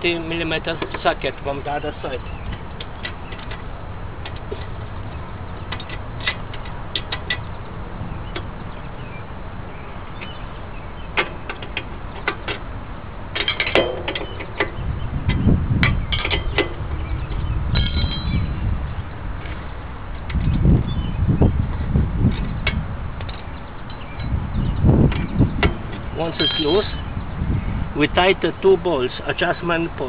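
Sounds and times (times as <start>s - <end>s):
dull low rumbles: 14.7s - 29.0s.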